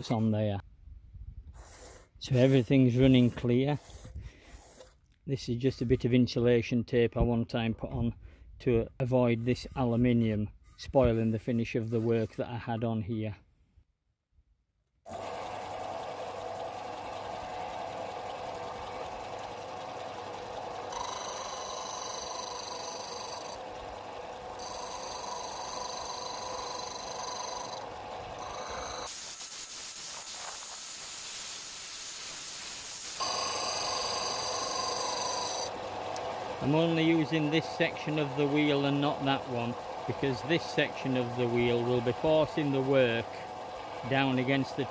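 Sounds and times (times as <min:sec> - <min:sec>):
wood scraping on sanding disc: 0:01.6 - 0:06.2, 0:09.1 - 0:12.6, 0:20.9 - 0:23.6, 0:24.6 - 0:30.8, 0:32.2 - 0:35.8, 0:36.6 - 0:43.4
sander running: 0:15.1 - 0:44.9.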